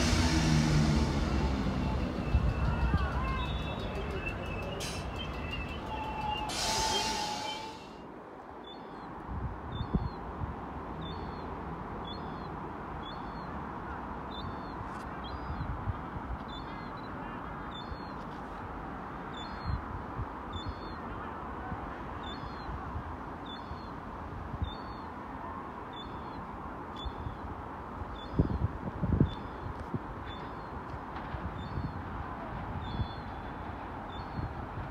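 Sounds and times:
distant rumble: 0.0 - 6.5
wind: 0.0 - 34.9.

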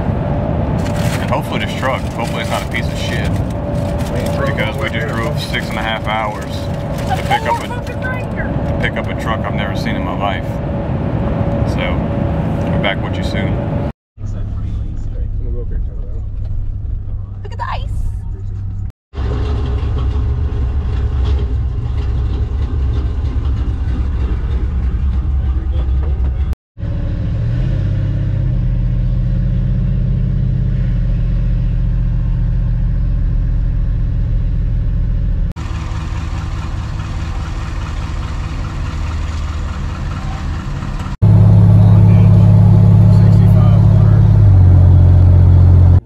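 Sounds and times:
pickup engine running: 0.0 - 11.8, 18.3 - 27.1, 30.4 - 46.0.

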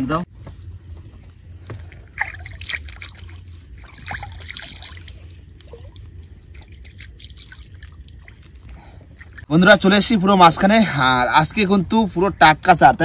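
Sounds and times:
water trickling and dripping: 1.7 - 9.5
small splashes: 1.8 - 9.5.

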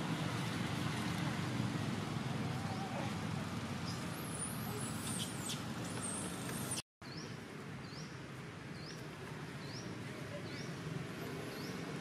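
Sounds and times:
outdoor background noise: 0.0 - 12.0.

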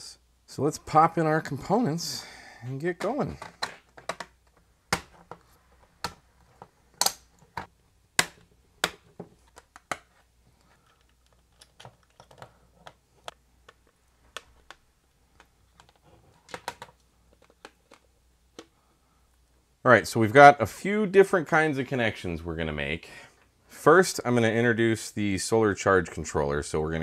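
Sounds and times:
plastic parts snapping into metal: 6.9 - 10.1.

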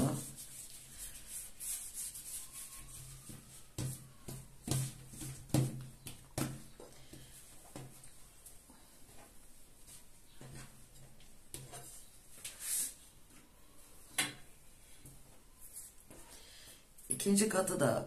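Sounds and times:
hands rubbing dough: 0.0 - 13.1
soft pats on dough: 2.8 - 12.6.

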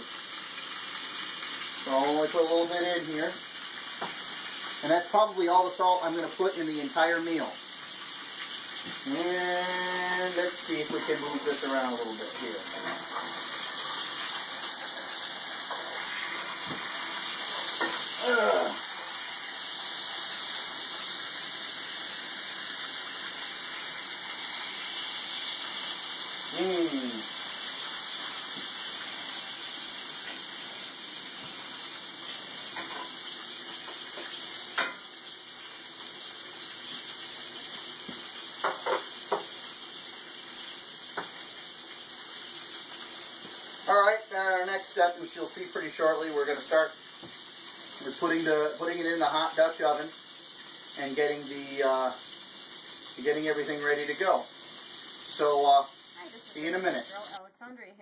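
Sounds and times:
meat sizzling in a skillet: 0.0 - 57.4.

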